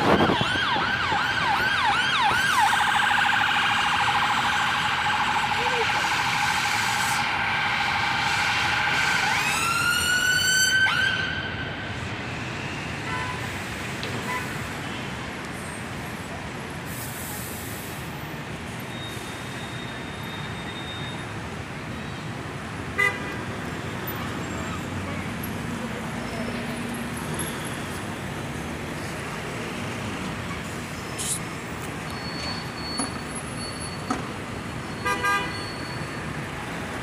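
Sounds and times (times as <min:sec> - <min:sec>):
emergency siren: 0:00.0 - 0:13.1
city road traffic: 0:00.0 - 0:37.0.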